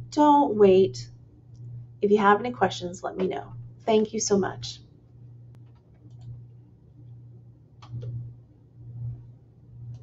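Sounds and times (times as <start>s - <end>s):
steady low hum: 0.0s - 10.0s
computer mouse clicks: 5.6s - 6.4s, 7.8s - 8.2s.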